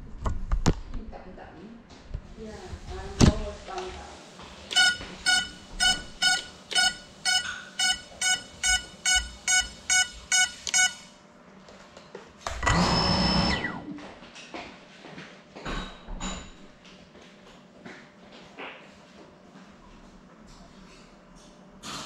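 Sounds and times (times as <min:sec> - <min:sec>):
electronic beeper short beeps: 0:04.7 - 0:11.2
drone motors whirring: 0:12.5 - 0:14.0.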